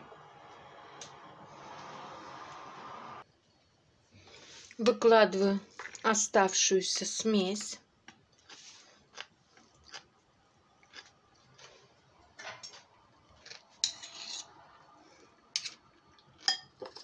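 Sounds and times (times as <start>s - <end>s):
metal spoon scraping and clinking: 13.8s - 14.6s, 15.6s - 15.8s, 16.5s - 17.0s.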